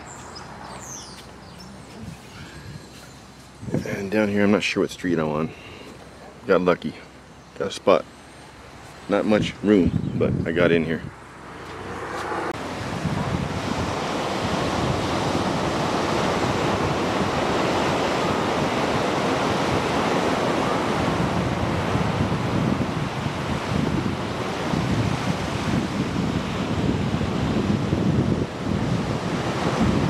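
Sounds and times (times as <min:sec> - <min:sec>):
wind buffeting microphone: 0:00.0 - 0:05.6, 0:08.4 - 0:30.0
ocean surf breaking on beach: 0:11.8 - 0:30.0.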